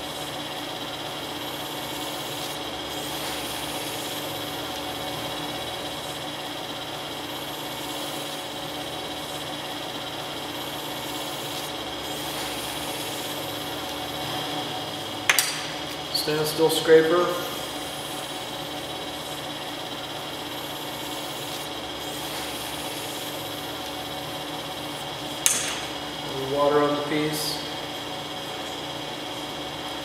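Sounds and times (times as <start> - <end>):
potter's wheel humming: 0.0 - 30.0
sharp click: 15.3 - 15.8, 25.4 - 26.0.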